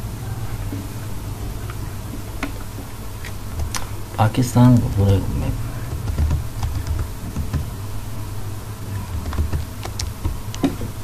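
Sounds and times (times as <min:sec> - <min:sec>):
steady low buzz: 0:00.0 - 0:11.0
computer keys clicking: 0:05.9 - 0:07.7, 0:09.1 - 0:10.7.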